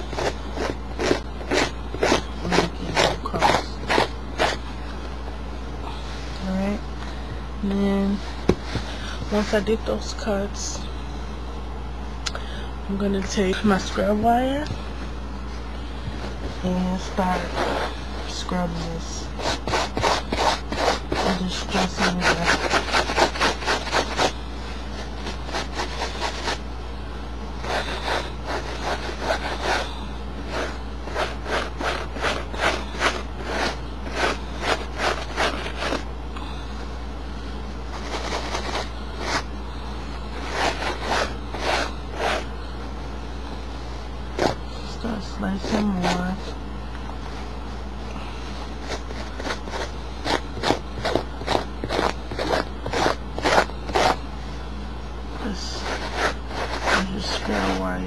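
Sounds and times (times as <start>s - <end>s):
wire scrubber scraping denim: 0.0s - 4.6s, 17.3s - 17.9s, 19.4s - 24.3s, 30.5s - 36.0s, 40.3s - 42.4s, 48.8s - 54.2s, 55.4s - 57.8s.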